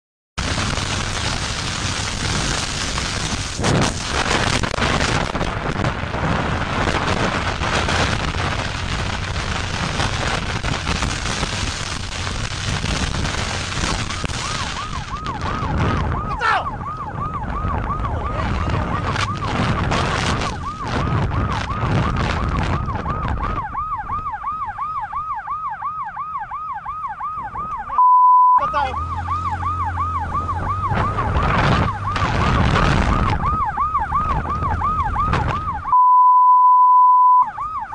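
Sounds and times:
wind and road noise: 0.4 - 36.0, 37.2 - 37.9
police siren yelp: 4.1 - 37.9
loud steady beep: 27.9 - 29.0, 35.9 - 37.6.

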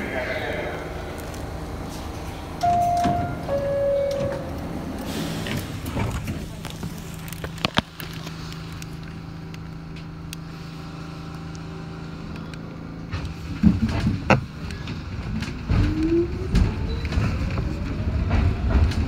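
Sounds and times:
subway car clunks: 0.0 - 7.0, 12.2 - 19.0
subway car electrical hum: 0.0 - 19.0.

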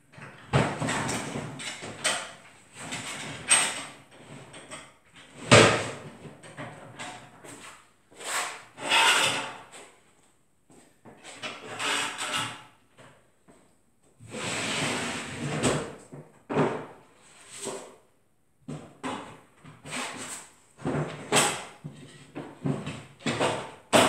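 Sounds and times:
table frame sliding and scraping: 14.3 - 15.8.

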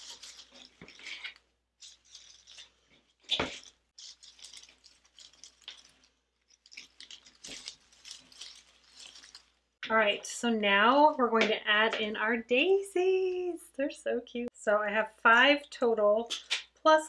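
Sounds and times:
artificial leaves rustling: 0.0 - 10.0.

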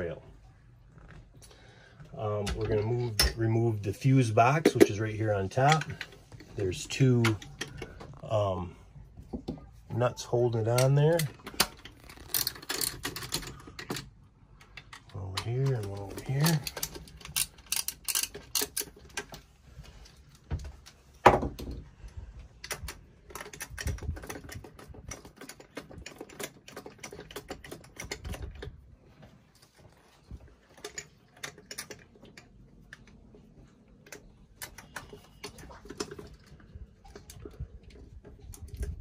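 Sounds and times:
plastic and metal parts clattering: 2.0 - 8.4, 10.5 - 39.0
hand ratchet clicking: 15.8 - 18.9.

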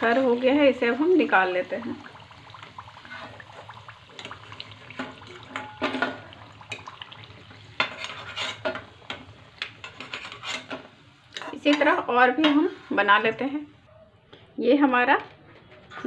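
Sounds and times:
oil sizzling: 0.0 - 13.7
metal spoon scraping a steel pan: 7.8 - 9.2, 9.8 - 13.1.

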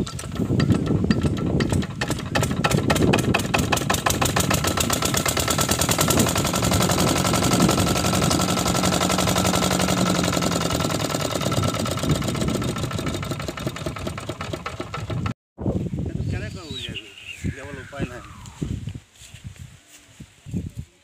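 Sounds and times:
diesel engine running: 0.1 - 15.3.

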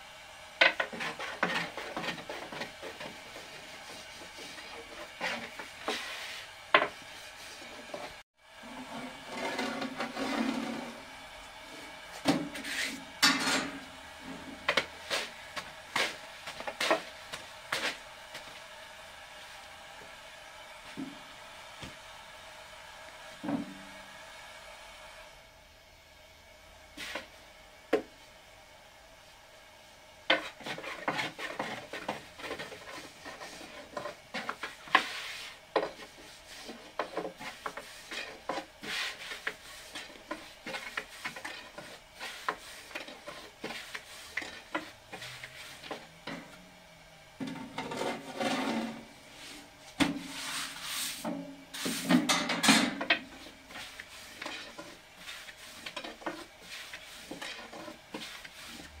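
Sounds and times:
household items scraping: 0.6 - 18.0, 30.3 - 46.6, 47.4 - 59.0.

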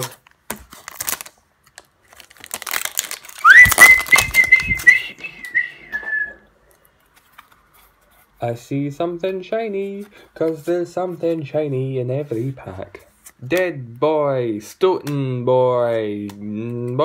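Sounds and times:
foil wrapper crinkling: 0.0 - 5.2
person whistling: 3.4 - 6.5.

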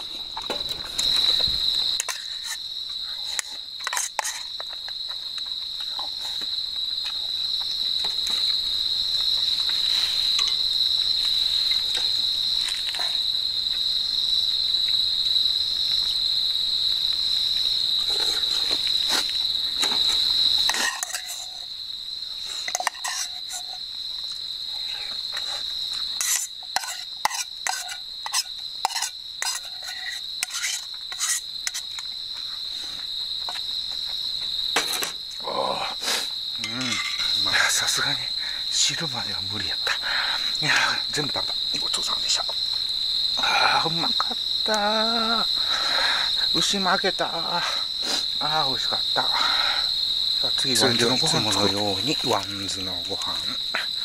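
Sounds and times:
crickets chirring: 0.0 - 54.0
spoon scraping metal pot: 2.0 - 2.6, 3.2 - 4.7, 20.7 - 21.7, 22.6 - 23.8, 26.2 - 32.0, 36.6 - 37.4.

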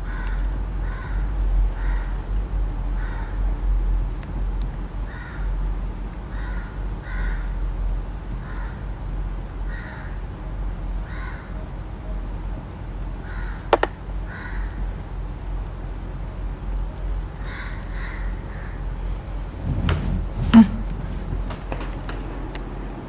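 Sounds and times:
crows cawing: 0.0 - 2.2, 3.0 - 3.4, 5.1 - 5.6, 6.3 - 7.6, 8.4 - 8.9, 9.6 - 10.2, 11.0 - 11.6, 13.2 - 14.8, 17.4 - 18.9
steady low hum: 0.0 - 23.0.

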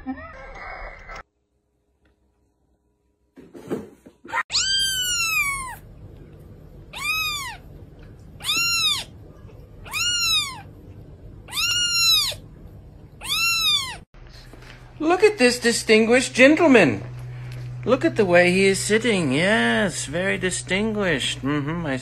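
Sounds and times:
kitten meowing: 4.3 - 5.8, 6.9 - 7.6, 8.4 - 10.7, 11.5 - 12.4, 13.2 - 14.0.

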